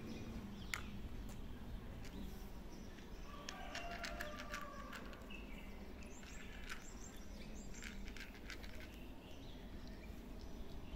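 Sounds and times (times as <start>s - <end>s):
birds chirping: 0.0s - 10.9s
cat crunching dry food: 3.7s - 5.3s, 6.0s - 9.0s.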